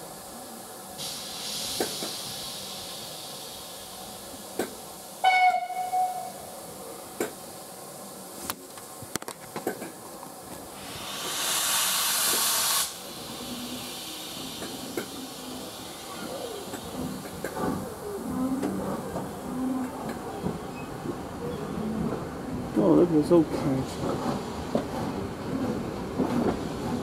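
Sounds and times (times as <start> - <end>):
hiss of escaping steam: 0.0 - 9.0, 10.6 - 19.6
steam locomotive whistle blast: 5.2 - 6.4.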